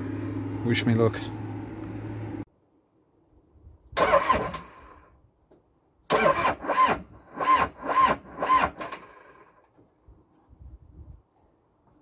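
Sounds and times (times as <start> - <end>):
diesel engine starter cranking: 4.0 - 5.1, 6.1 - 9.6.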